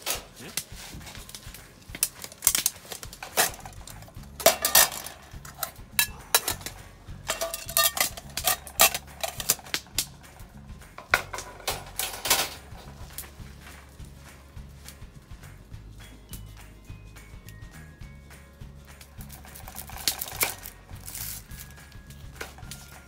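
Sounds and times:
cookware clattering on metal table: 0:02.0 - 0:10.2, 0:11.0 - 0:13.3, 0:19.2 - 0:21.4.

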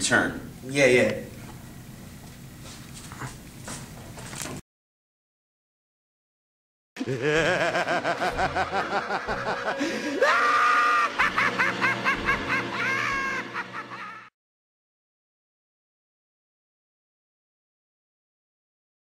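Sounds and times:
evil laugh: 0:07.0 - 0:14.3.

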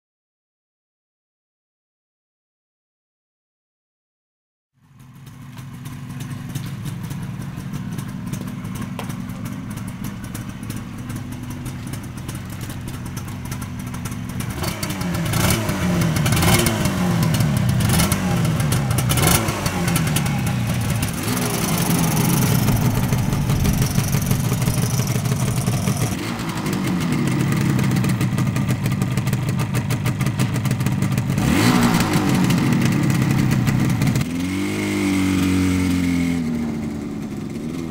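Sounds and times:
motorcycle engine idling and revving: 0:04.8 - 0:37.9.

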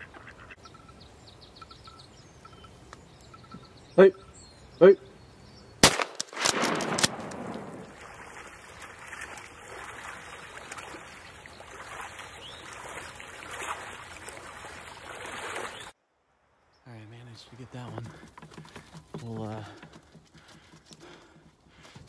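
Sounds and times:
water sloshing and splashing: 0:07.5 - 0:16.0.

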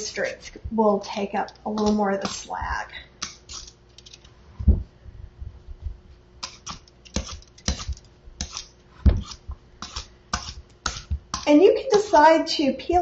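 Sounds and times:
peeler scraping squash skin: 0:03.2 - 0:03.8, 0:06.4 - 0:12.3.

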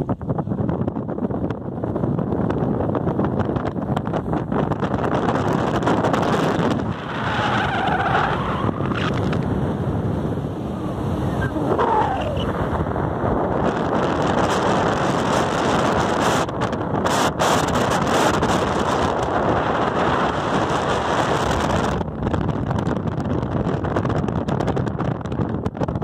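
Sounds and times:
wind buffeting microphone: 0:00.0 - 0:26.0
road traffic passing: 0:06.8 - 0:18.2.

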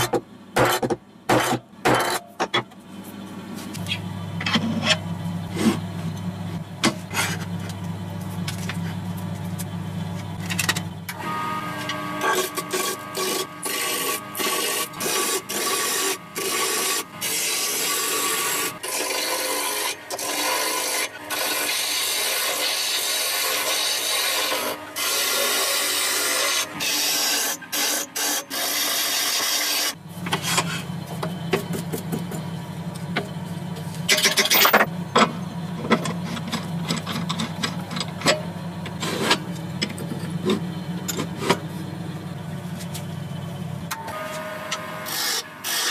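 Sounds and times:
gouge scraping wood on lathe: 0:11.6 - 0:30.9, 0:44.3 - 0:45.9.

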